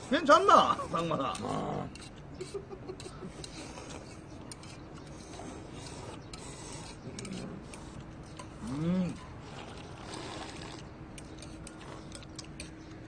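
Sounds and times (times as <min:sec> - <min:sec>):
faint noodle slurping: 0:03.2 - 0:12.8
chopsticks clicking on metal bowls: 0:06.4 - 0:09.3, 0:11.1 - 0:13.0.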